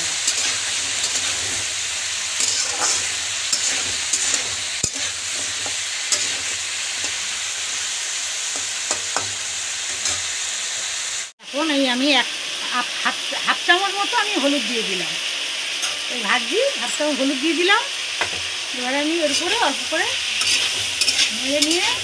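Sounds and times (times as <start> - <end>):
vegetables sizzling in oil: 0.0 - 22.0
metal spatula scraping pan: 0.1 - 1.8, 2.4 - 7.3, 19.2 - 22.0.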